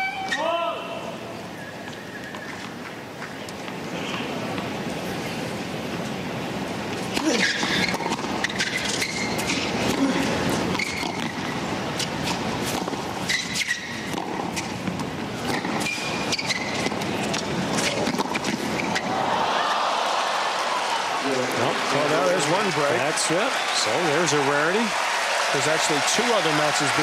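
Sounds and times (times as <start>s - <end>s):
shoes squeaking on court: 0.0s - 0.5s, 1.4s - 6.2s, 6.9s - 19.1s
crowd hum: 14.0s - 27.0s.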